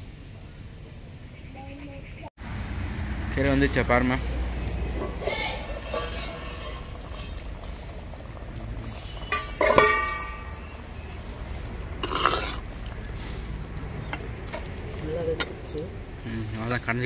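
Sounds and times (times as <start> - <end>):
metal lid clanging on concrete: 5.0 - 7.4, 9.2 - 10.7
steel ladle clattering: 5.0 - 7.5, 9.1 - 10.7.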